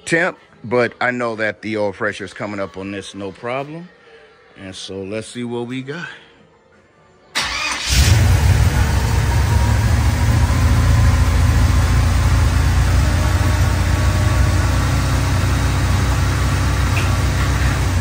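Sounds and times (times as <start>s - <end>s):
vee eight engine running: 7.8s - 18.0s.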